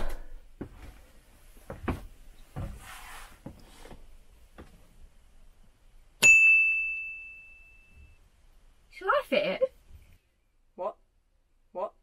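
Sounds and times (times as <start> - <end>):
light knocks and thumps: 1.6 - 2.8.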